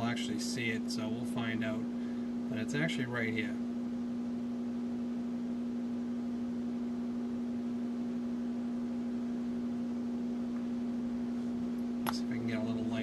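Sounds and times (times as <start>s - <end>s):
electrical hum: 0.0s - 13.0s.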